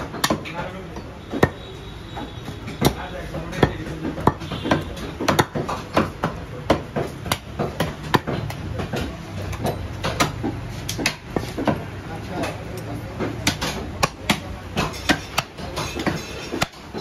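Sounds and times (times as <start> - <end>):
cleaver chopping on wooden block: 0.0 - 12.6, 13.2 - 17.0.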